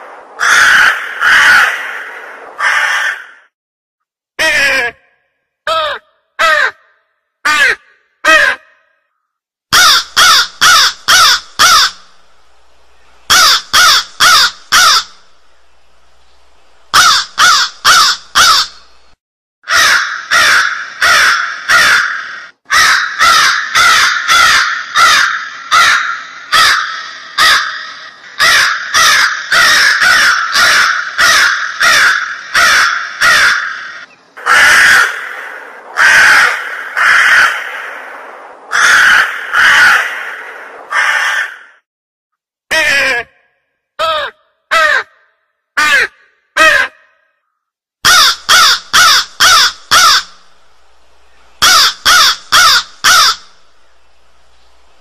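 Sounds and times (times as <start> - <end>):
crows cawing: 0.4 - 3.5, 5.7 - 9.0, 9.7 - 12.1, 13.3 - 15.2, 16.9 - 18.9, 19.6 - 41.8, 44.0 - 47.2, 48.0 - 50.4, 51.6 - 53.6.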